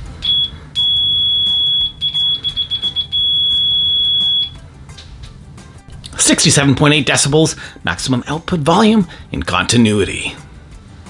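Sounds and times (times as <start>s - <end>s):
multimeter continuity beep: 0.2s - 4.6s.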